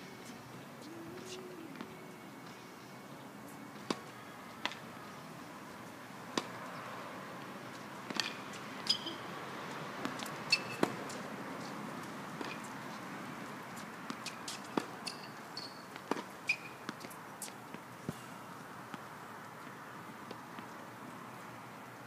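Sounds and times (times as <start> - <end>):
tennis balls struck by rackets: 3.8 - 4.9, 6.3 - 6.6, 8.0 - 9.3, 10.0 - 11.2, 12.0 - 12.7, 13.8 - 18.3
tennis balls bouncing on hard court: 8.0 - 9.2, 10.0 - 11.2.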